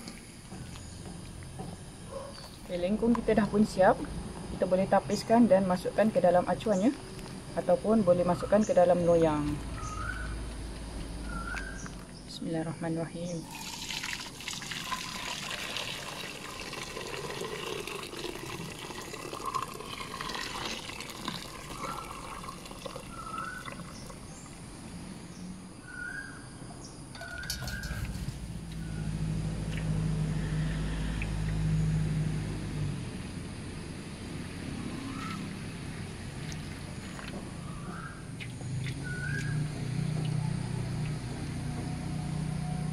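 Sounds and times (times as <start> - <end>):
liquid pouring and splashing: 13.4 - 24.6
low hum: 27.2 - 42.9.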